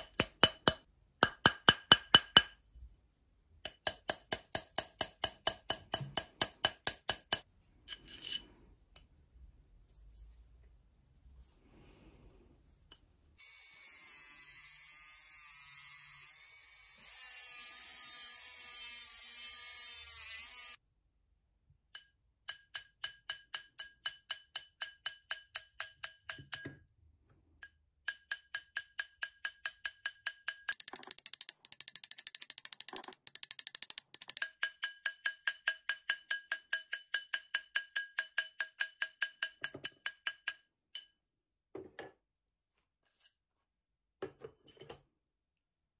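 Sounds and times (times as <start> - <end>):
hammer tapping metal ring: 22.0 - 26.9, 27.6 - 41.1.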